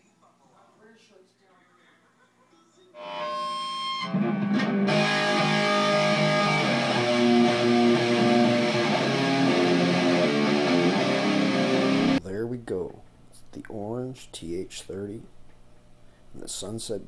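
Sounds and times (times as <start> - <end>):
electric guitar chords: 3.0 - 12.2.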